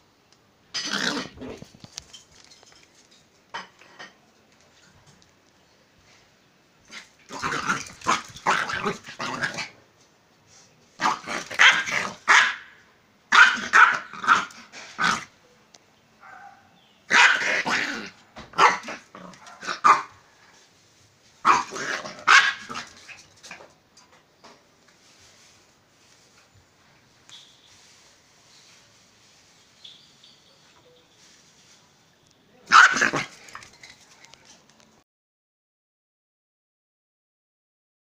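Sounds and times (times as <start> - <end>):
small dog barking: 11.0 - 15.3, 16.2 - 20.2, 21.4 - 22.9, 32.6 - 33.3.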